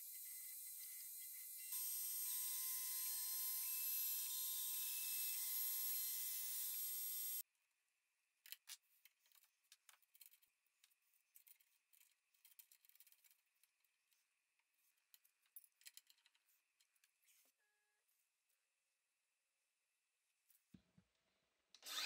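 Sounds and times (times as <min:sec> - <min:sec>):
router whining: 0:21.8 - 0:22.0.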